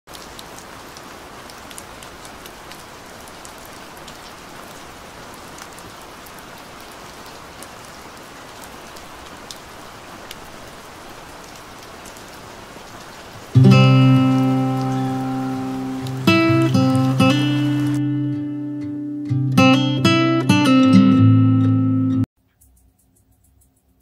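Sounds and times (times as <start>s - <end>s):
raindrop ticks: 0.1s - 4.3s, 6.8s - 10.6s, 11.4s - 18.0s
steady rain hiss: 0.1s - 20.8s.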